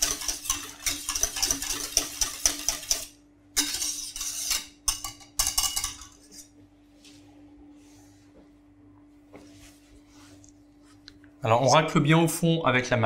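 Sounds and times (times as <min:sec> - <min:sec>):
whisk scraping metal saucepan: 0:00.0 - 0:06.5
faint steady hum: 0:00.2 - 0:13.0.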